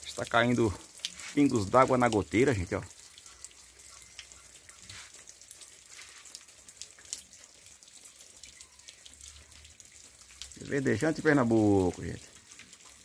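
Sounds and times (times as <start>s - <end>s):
drops dripping from roof eave: 0.0s - 13.0s
light rain hiss: 0.0s - 13.0s.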